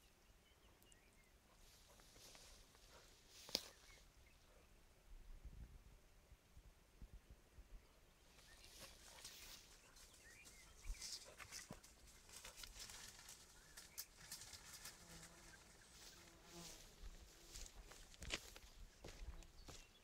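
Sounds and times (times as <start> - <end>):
rustling undergrowth: 1.5 - 4.4, 8.3 - 20.0
twigs snapping: 3.4 - 3.7.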